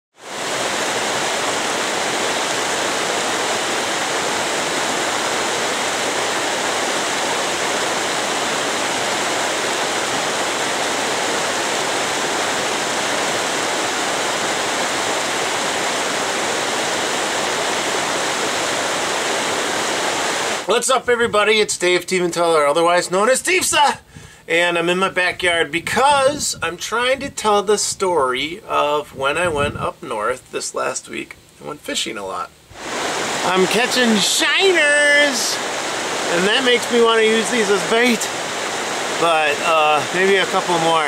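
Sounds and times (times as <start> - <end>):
river water running over rocks: 0.2 - 20.7, 32.7 - 41.0.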